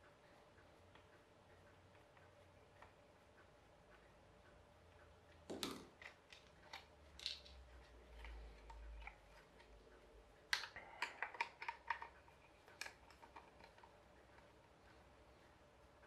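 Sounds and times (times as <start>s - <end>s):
small parts being handled: 5.5s - 9.7s.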